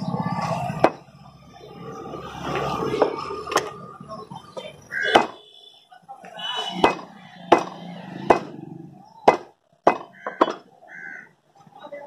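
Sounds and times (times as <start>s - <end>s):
cleaver chopping on wooden block: 5.1s - 5.4s, 6.8s - 8.5s, 9.2s - 10.7s.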